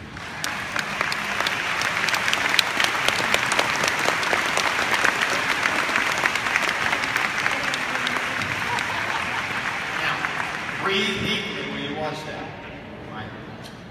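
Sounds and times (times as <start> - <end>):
large audience applauding: 0.0 - 12.0.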